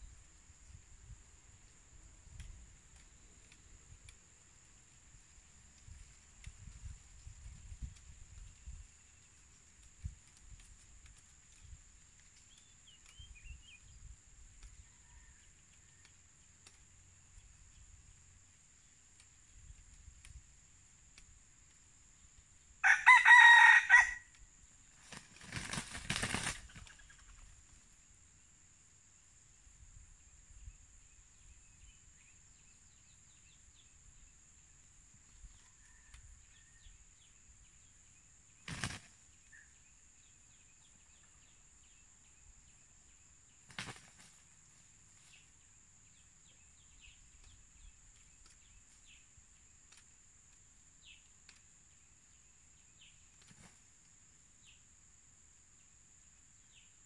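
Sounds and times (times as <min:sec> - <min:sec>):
faint insect drone: 0:00.0 - 0:57.0
faint bird chirps: 0:12.4 - 0:18.2, 0:29.7 - 0:50.1
rooster crowing: 0:22.8 - 0:24.3
wing flapping: 0:24.9 - 0:27.8, 0:38.6 - 0:39.2, 0:43.6 - 0:45.3, 0:53.3 - 0:53.9.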